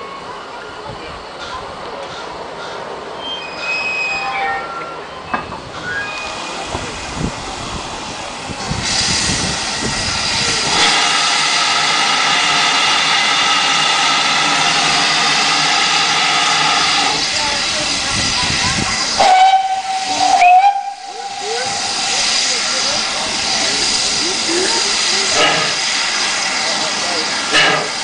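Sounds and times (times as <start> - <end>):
wheel squeals: 3.2 - 6.4
steam hissing: 5.6 - 28.0
steam whistle: 19.2 - 21.8.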